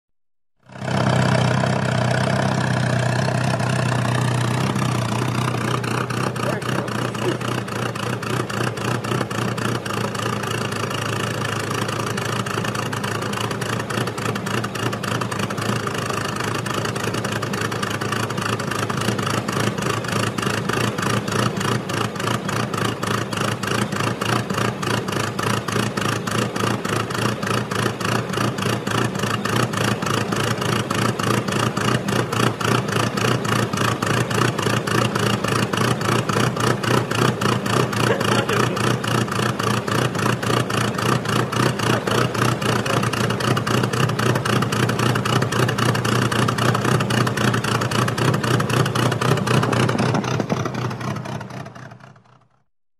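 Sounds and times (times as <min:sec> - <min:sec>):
car engine idling: 0:00.6 - 0:52.7.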